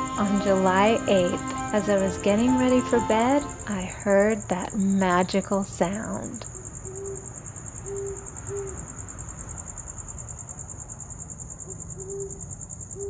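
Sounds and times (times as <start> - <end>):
crickets chirping: 0.0 - 13.0
owl hooting: 6.4 - 8.9, 11.6 - 13.0.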